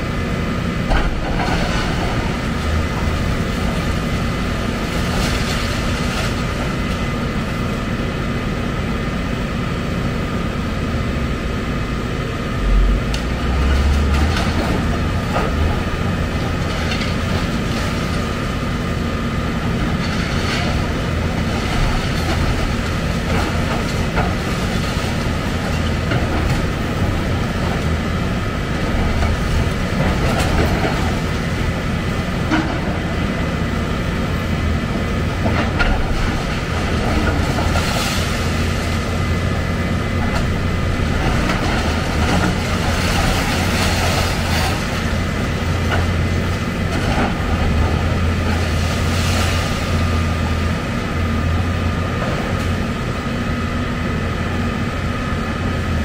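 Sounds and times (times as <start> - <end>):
excavator running under load: 0.0 - 56.0.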